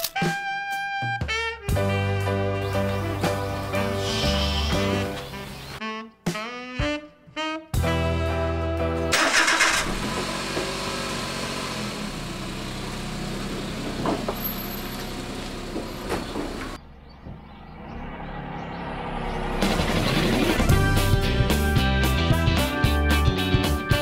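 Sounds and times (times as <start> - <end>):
truck engine idling: 9.2 - 17.7.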